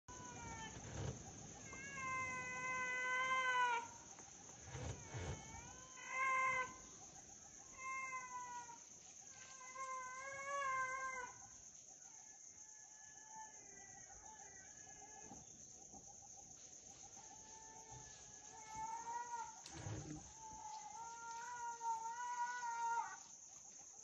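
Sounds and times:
bear cub wailing: 0.1s - 4.0s, 4.6s - 6.8s.

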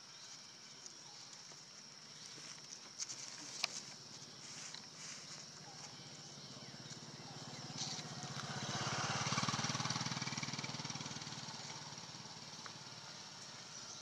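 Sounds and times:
engine passing by: 4.0s - 14.0s.

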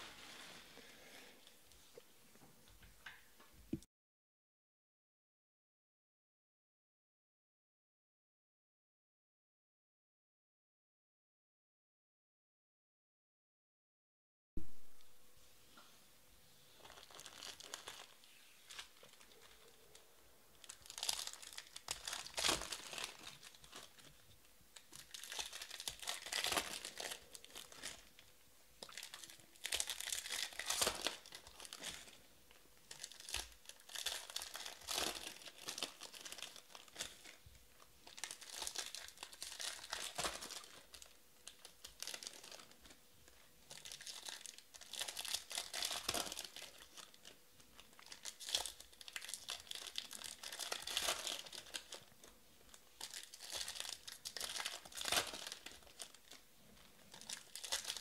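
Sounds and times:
foil wrappers tearing and crinkling: 16.8s - 20.0s, 20.6s - 24.2s, 24.8s - 28.2s, 28.8s - 32.2s, 32.8s - 37.4s, 38.0s - 43.0s, 43.7s - 56.4s, 57.1s - 58.0s.

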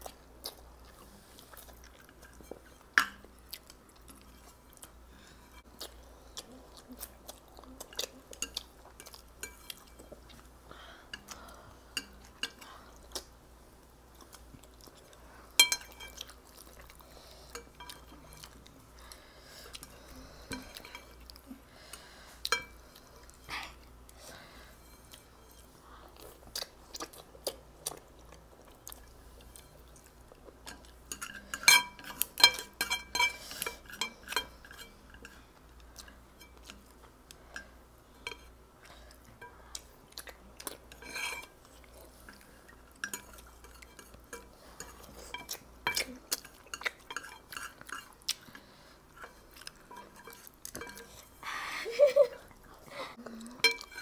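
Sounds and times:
chewing noodles: 38.8s - 51.4s.

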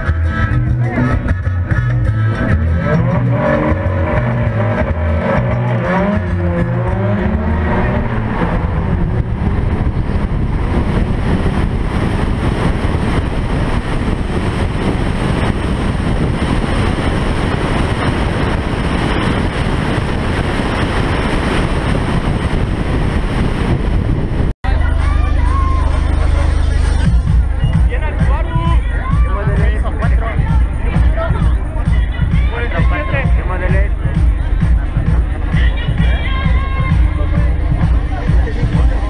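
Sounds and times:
wind noise at speed: 0.0s - 24.6s
car engine accelerating: 0.0s - 39.0s.

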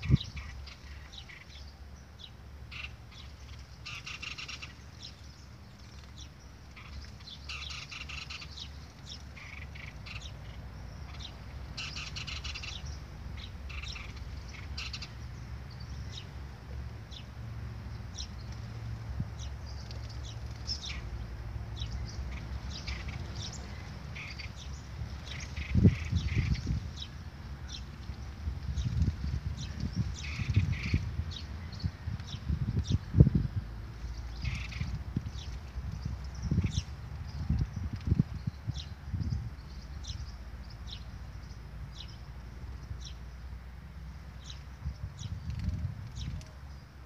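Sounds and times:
small birds chirping: 0.0s - 47.0s.

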